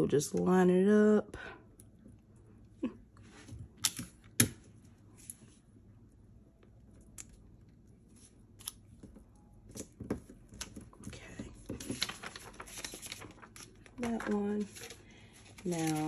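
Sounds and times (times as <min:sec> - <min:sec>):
paper shuffling and rustling: 0:09.7 - 0:16.0.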